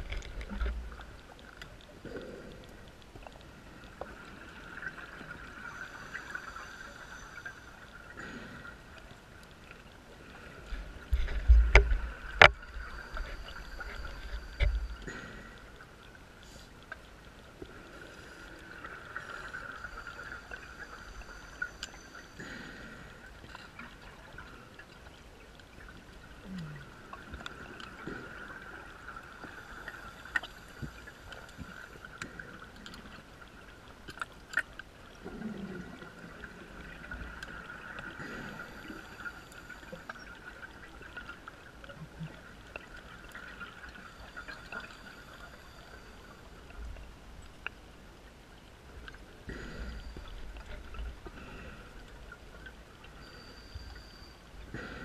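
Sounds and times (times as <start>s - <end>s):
underwater bubbles gurgling: 0.0s - 55.0s
steady high hum: 10.4s - 24.8s.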